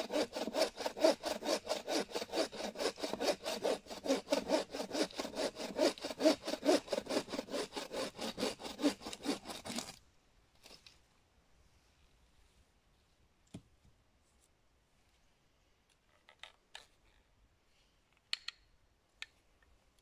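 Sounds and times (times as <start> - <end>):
hand saw cutting wood: 0.0 - 10.0.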